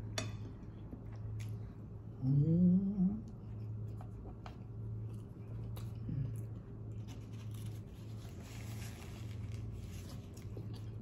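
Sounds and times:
steady low hum: 0:00.0 - 0:11.0
food handling noises: 0:03.9 - 0:11.0
chewing food: 0:09.0 - 0:11.0.

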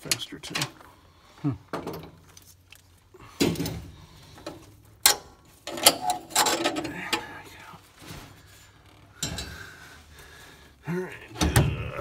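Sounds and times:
metal clatter: 0:03.4 - 0:07.2
wrench clicking and scraping: 0:04.4 - 0:07.2.

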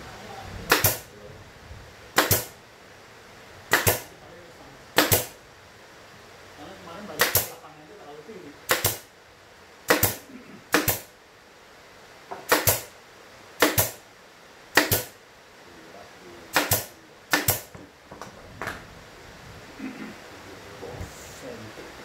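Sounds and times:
nail gun shots: 0:00.7 - 0:01.1, 0:02.1 - 0:02.6, 0:03.7 - 0:04.1, 0:05.0 - 0:05.4, 0:07.2 - 0:07.6, 0:08.7 - 0:09.1, 0:09.9 - 0:11.2, 0:12.4 - 0:13.0, 0:13.6 - 0:14.0, 0:14.7 - 0:15.2, 0:16.5 - 0:17.7.

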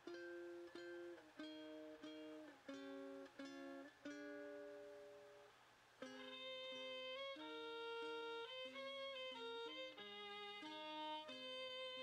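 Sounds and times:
plucked string instrument melody: 0:00.0 - 0:12.0.

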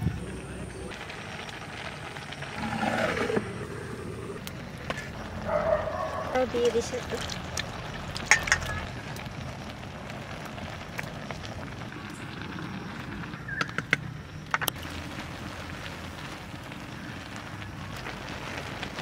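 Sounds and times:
rice cooking over wood fire: 0:00.0 - 0:19.0
water splashing in bowl: 0:06.7 - 0:09.0.

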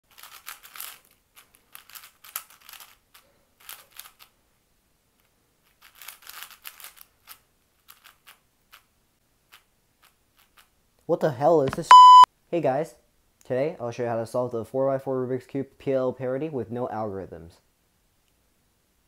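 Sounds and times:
puzzle cube clicking: 0:00.1 - 0:04.3, 0:05.7 - 0:08.9.

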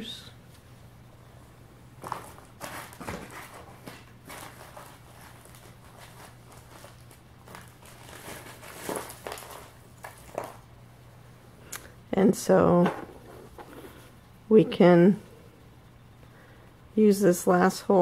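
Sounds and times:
low electrical hum: 0:00.0 - 0:18.0
rustling of handling things: 0:02.0 - 0:10.8, 0:12.7 - 0:14.9.

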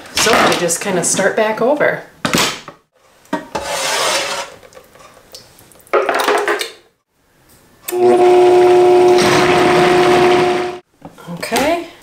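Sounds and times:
blender motor running: 0:07.9 - 0:10.8.

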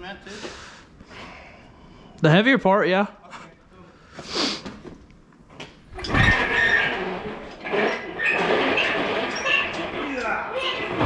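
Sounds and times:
casters grinding and squeaking: 0:05.9 - 0:11.0.

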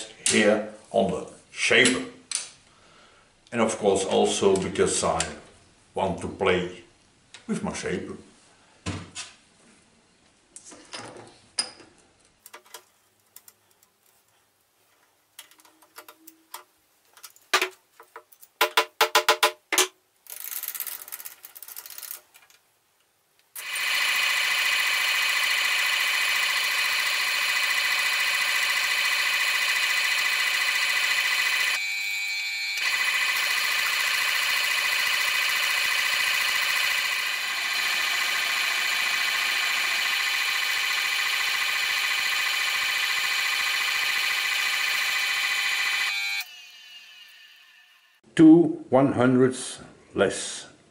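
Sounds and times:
metal shaper running with whine: 0:23.6 - 0:48.2.

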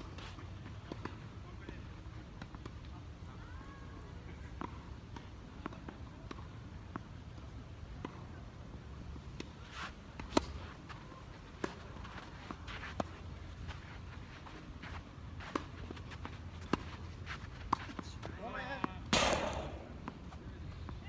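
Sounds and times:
shoes scuffing on sand: 0:11.6 - 0:18.4
tennis ball bouncing on court: 0:18.8 - 0:20.4
racket hitting ball: 0:19.0 - 0:20.3.

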